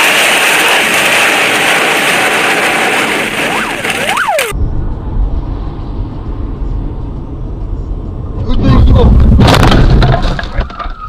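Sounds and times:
car engine and tyres rumbling: 0:00.0 - 0:11.0.

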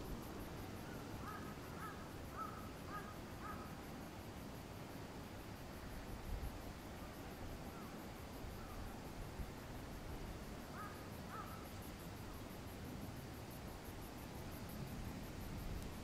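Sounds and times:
crows cawing: 0:01.2 - 0:03.7, 0:10.8 - 0:11.6.

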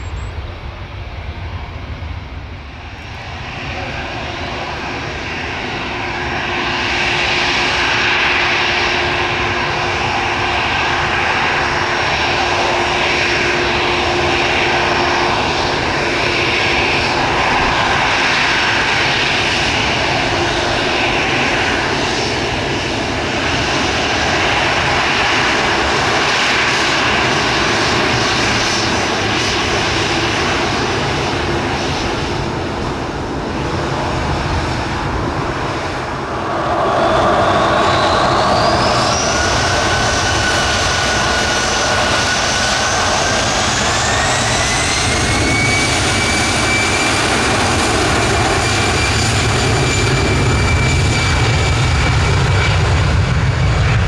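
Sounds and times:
jet engines whining at taxi: 0:00.0 - 0:54.0.

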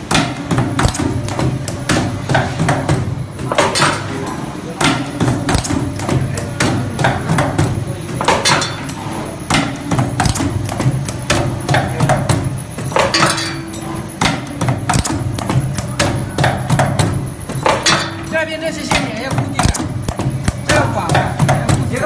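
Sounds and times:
low machine hum: 0:00.0 - 0:22.0
machine metallic clatter: 0:00.0 - 0:22.0.

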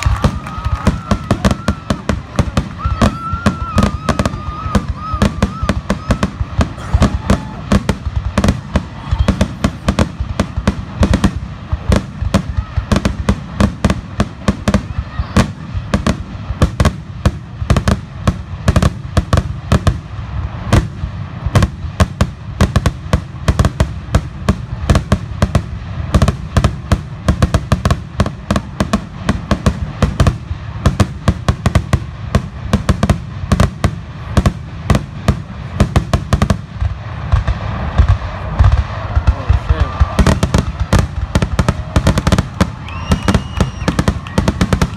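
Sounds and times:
fireworks booming: 0:00.0 - 0:44.9.

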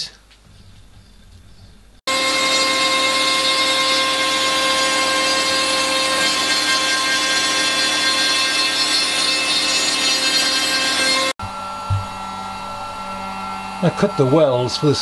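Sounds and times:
cutter rasping in wood: 0:02.1 - 0:11.4
router spindle whine: 0:02.1 - 0:15.0.

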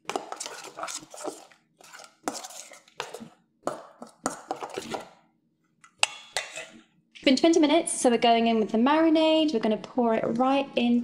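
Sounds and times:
metal spoon stirring in steel bowl: 0:00.0 - 0:05.2, 0:05.9 - 0:06.9
spoon scraping and clinking bowl: 0:00.1 - 0:03.4, 0:04.0 - 0:05.1, 0:06.0 - 0:06.8.

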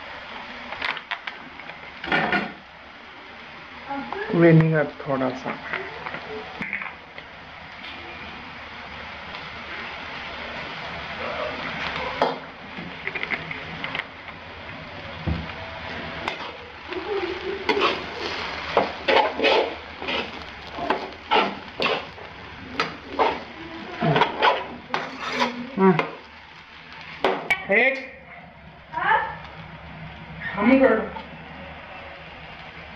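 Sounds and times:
spoon scraping frying pan: 0:17.6 - 0:22.2, 0:22.8 - 0:26.2.

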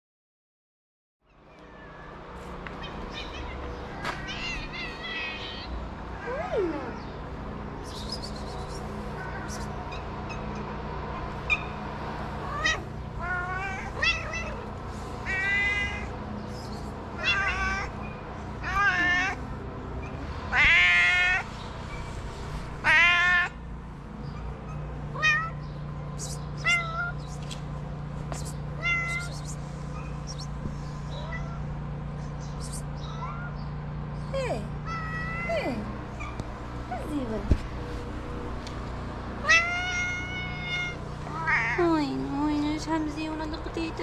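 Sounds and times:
cat meowing: 0:02.8 - 0:07.0, 0:12.5 - 0:16.1, 0:17.2 - 0:19.4, 0:20.5 - 0:21.5, 0:22.8 - 0:23.6, 0:25.1 - 0:25.6, 0:26.6 - 0:27.2, 0:28.8 - 0:29.6, 0:31.1 - 0:31.7, 0:34.8 - 0:35.6, 0:39.4 - 0:41.8.

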